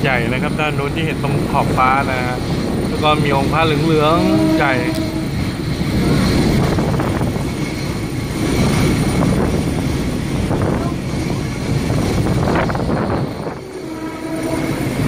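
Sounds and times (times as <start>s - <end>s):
train engine and wheels rumbling: 0.0s - 15.0s
wind noise: 4.2s - 15.0s.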